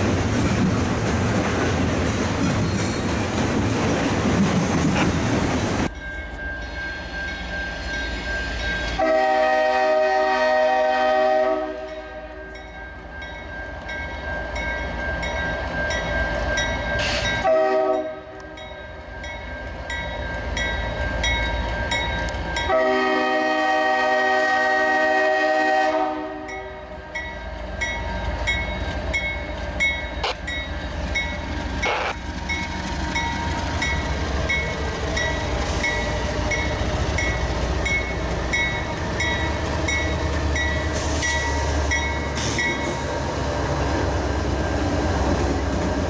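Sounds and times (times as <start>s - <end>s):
freight cars rolling on rails: 0.0s - 9.2s, 26.4s - 46.0s
crossing bell ringing: 5.8s - 9.8s, 11.7s - 23.2s, 26.3s - 43.3s
locomotive air horn: 8.9s - 12.4s, 17.0s - 18.4s, 22.7s - 26.6s, 31.8s - 32.2s.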